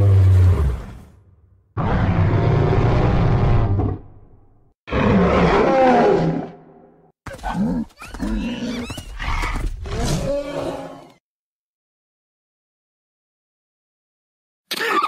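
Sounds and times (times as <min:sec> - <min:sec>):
animal roar: 0:01.8 - 0:04.2, 0:04.9 - 0:06.6, 0:07.3 - 0:11.2.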